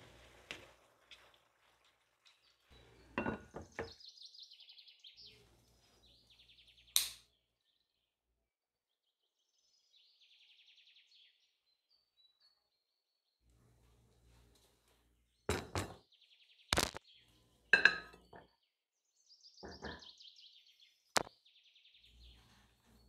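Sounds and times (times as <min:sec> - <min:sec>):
small birds chirping and trilling: 0:02.2 - 0:08.1, 0:09.0 - 0:13.4, 0:15.2 - 0:23.0
glass lid clattering onto metal pot: 0:03.2 - 0:03.8, 0:17.8 - 0:18.4
lighter click: 0:07.0 - 0:07.2.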